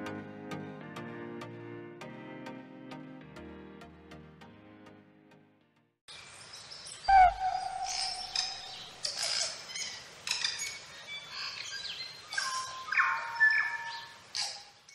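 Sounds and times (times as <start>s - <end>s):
birds chirping and whistling: 6.5s - 14.9s.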